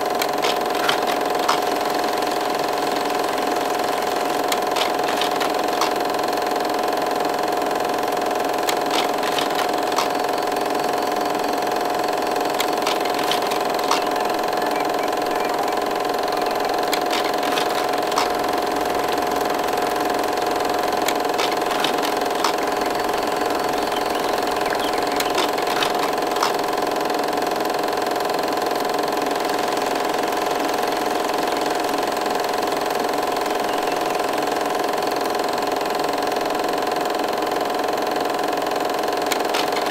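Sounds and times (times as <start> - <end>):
machine-like hum: 0.0 - 39.9
faint clicks: 8.6 - 11.2, 12.3 - 20.1, 20.8 - 26.8, 39.3 - 39.9.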